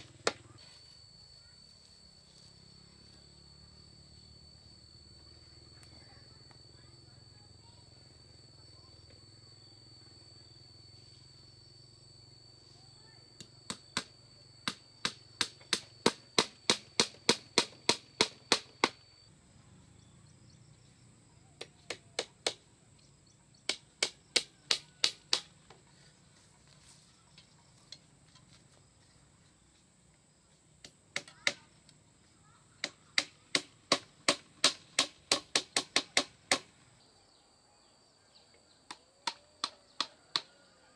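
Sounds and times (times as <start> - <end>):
hammer knocking on bamboo: 13.7 - 19.0, 21.6 - 22.7, 23.7 - 25.8, 30.8 - 31.7, 32.8 - 36.7, 38.9 - 40.5.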